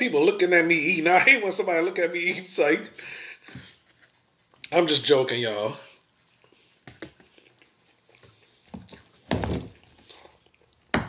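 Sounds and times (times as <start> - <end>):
chewing: 7.2 - 9.2, 9.8 - 10.9.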